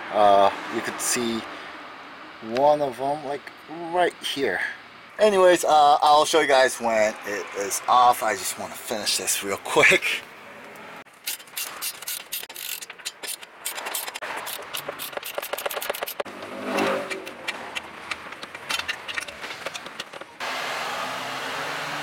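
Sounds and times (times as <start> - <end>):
hand tools clicking on metal: 11.2 - 20.4.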